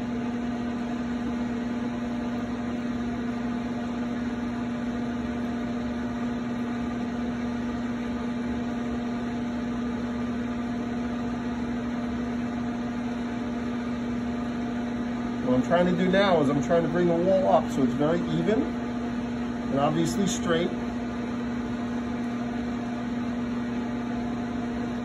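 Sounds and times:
potter's wheel motor hum: 0.0 - 25.0.

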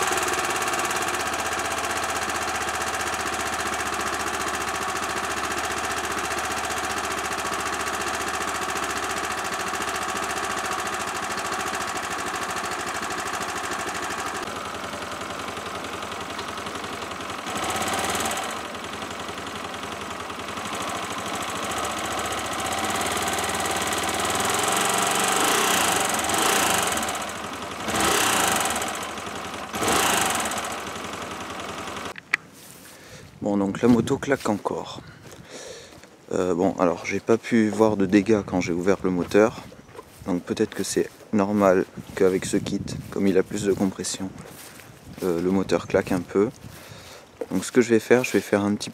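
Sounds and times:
engine knocking: 0.0 - 32.2
motorcycle engine idling and revving: 0.0 - 33.0, 35.3 - 48.9.

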